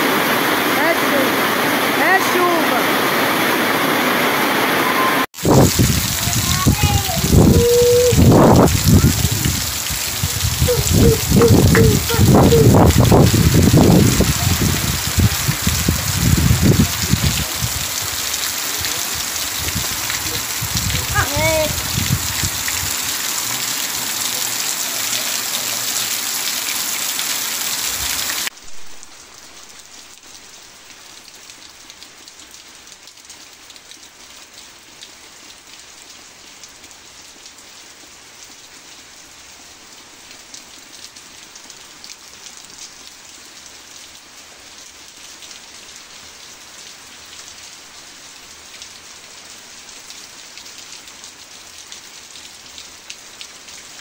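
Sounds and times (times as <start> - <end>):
heavy rain hissing: 0.0 - 30.9
light rain patter: 0.0 - 54.0.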